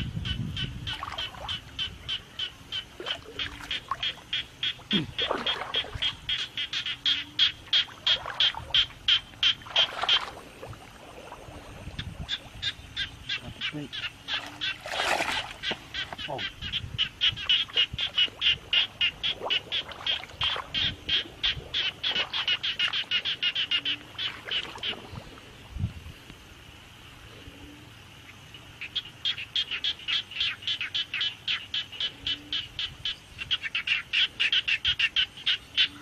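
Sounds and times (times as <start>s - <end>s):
frog clicking call: 0.0s - 10.5s, 11.9s - 25.2s, 27.7s - 36.0s
water splash: 5.2s - 6.1s, 7.9s - 12.4s, 14.3s - 16.3s.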